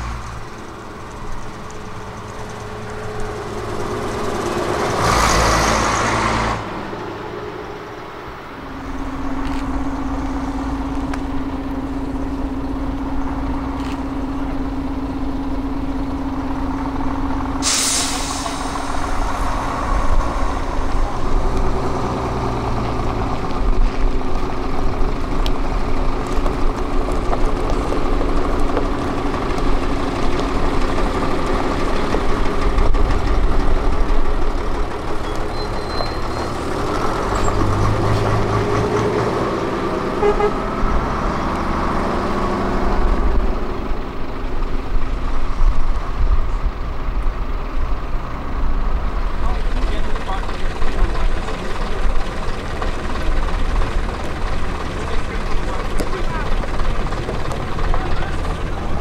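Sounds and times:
diesel bus engine: 0.0s - 59.0s
air brake hiss: 17.6s - 19.4s.

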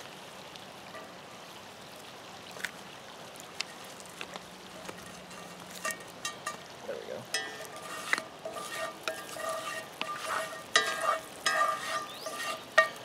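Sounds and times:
butter sizzling in a skillet: 3.6s - 13.0s.

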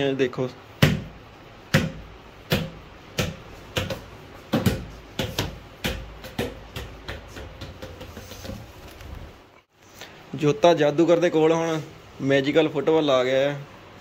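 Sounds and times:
ball thudding on hard floor: 0.8s - 8.7s.

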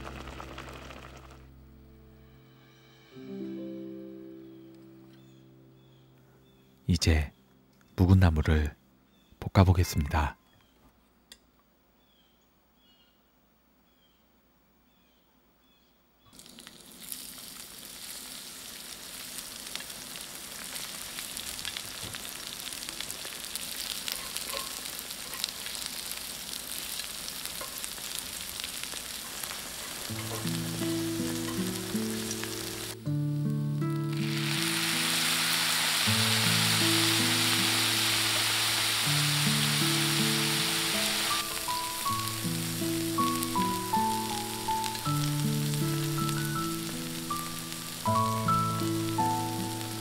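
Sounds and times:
soft background music: 0.0s - 8.8s, 30.1s - 50.0s
vegetables sizzling in oil: 16.4s - 33.0s, 33.8s - 50.0s.

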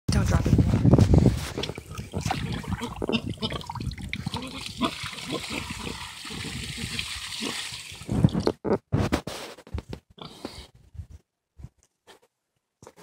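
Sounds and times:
water pouring into plastic tub: 1.6s - 8.6s
pig grunting: 1.8s - 7.8s.

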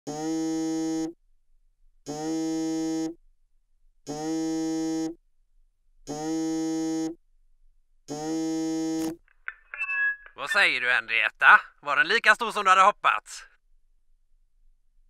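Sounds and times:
electronic phone ring tone: 9.5s - 10.6s.

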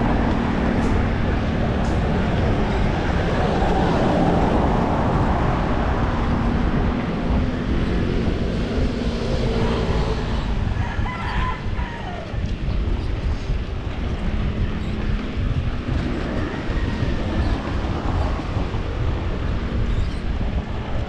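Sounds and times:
bicycle road rumble: 0.0s - 21.0s
wind rush: 0.0s - 21.0s
rooster crowing: 10.7s - 12.4s.

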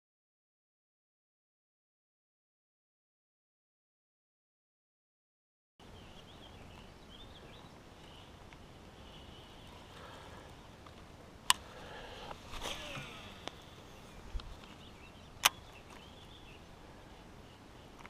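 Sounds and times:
faint birds chirping: 5.8s - 18.0s
rustling and reel whirring: 9.6s - 14.9s.

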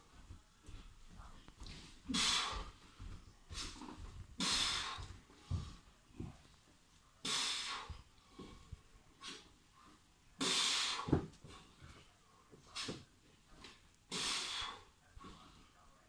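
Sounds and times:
quiet breathing: 0.0s - 16.0s
forceful exhales: 14.1s - 14.9s.

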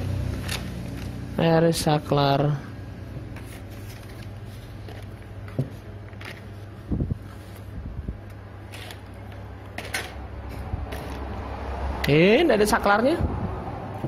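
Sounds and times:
steady low hum: 0.0s - 12.1s
paper sheets rustling: 3.2s - 7.8s.

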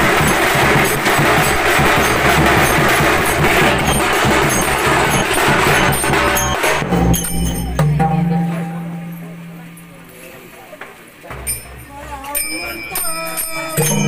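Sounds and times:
barrel drums: 0.0s - 14.0s
small hand cymbals: 0.0s - 14.0s
steady low tone: 6.9s - 10.6s.

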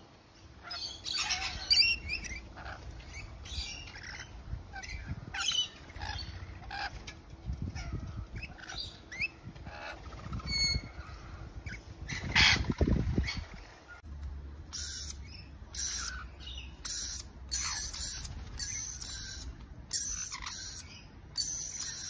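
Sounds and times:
parrots screeching and chirping: 0.6s - 13.9s, 14.7s - 22.0s.

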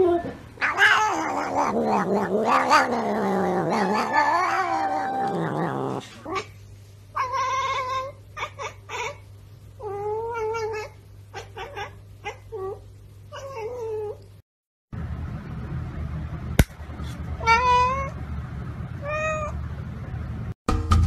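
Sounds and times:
cat long wavering meow: 0.0s - 6.0s.

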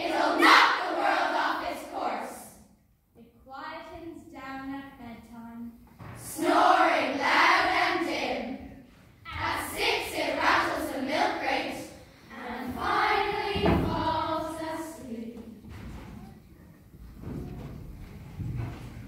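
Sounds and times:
girls' choir singing: 0.0s - 2.6s, 6.2s - 16.0s
thud: 6.0s - 6.4s, 12.7s - 16.4s, 17.0s - 19.0s.

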